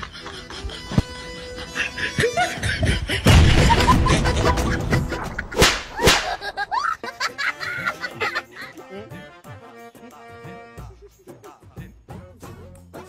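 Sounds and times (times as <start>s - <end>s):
background music: 0.0s - 13.0s
rubber band snaps: 5.6s - 6.4s.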